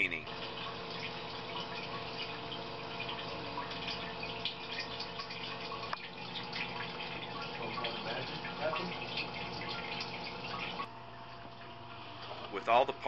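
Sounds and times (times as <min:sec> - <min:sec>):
liquid trickling into metal sink: 0:00.3 - 0:12.6.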